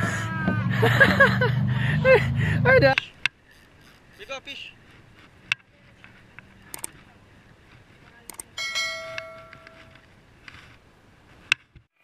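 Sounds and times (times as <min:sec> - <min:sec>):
sharp clicks and knocks: 0:05.4 - 0:07.0, 0:08.3 - 0:08.5
bell-like metallic ring: 0:08.6 - 0:09.9.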